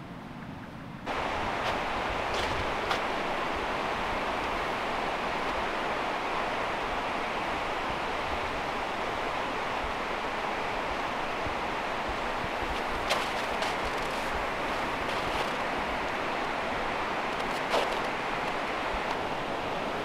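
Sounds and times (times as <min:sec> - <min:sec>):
stream water rushing: 0:01.1 - 0:20.0.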